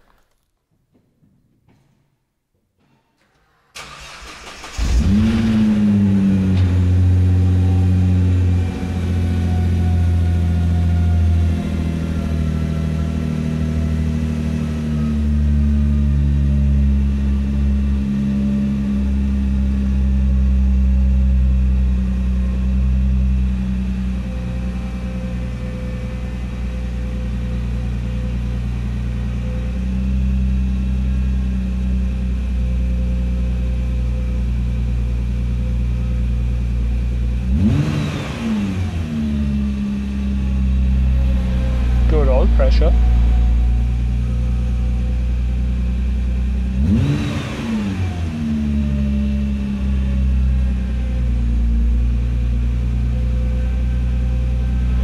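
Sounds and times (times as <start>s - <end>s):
car engine cranking: 3.3s - 7.1s
car engine idling loudly: 4.8s - 55.0s.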